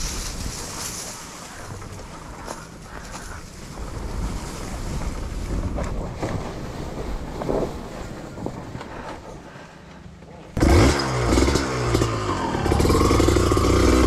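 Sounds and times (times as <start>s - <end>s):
wind buffeting microphone: 0.0s - 9.5s
motorcycle engine rumble: 0.0s - 14.0s.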